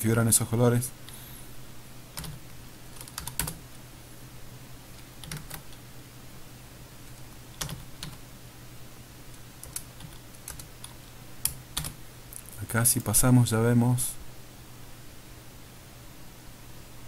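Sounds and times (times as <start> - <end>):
computer keyboard typing: 2.2 - 3.6, 5.0 - 5.8, 7.1 - 8.2, 9.6 - 12.0.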